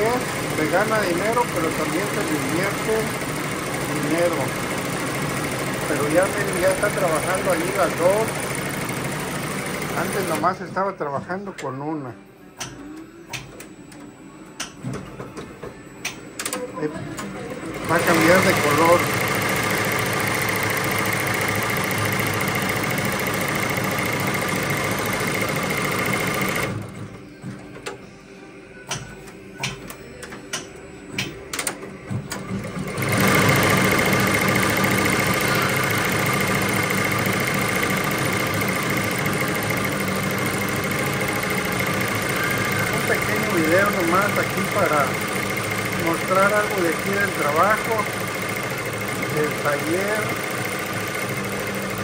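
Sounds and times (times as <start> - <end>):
embroidery machine stitching: 0.0 - 10.6, 16.4 - 27.1, 31.5 - 52.0
machine clicks and clacks: 29.6 - 52.0.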